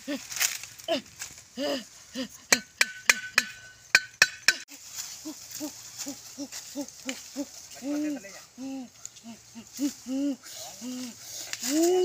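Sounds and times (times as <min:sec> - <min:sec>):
machete striking wooden stake: 0:02.5 - 0:04.6.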